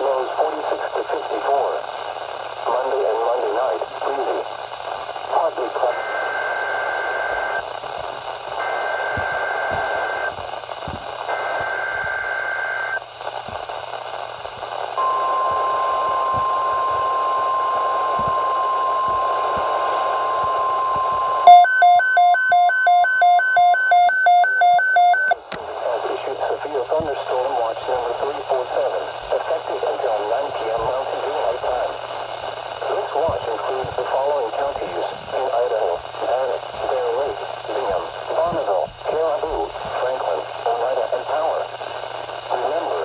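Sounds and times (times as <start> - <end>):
radio hiss: 0.0 - 43.0
rapid electronic beeps: 20.3 - 25.4.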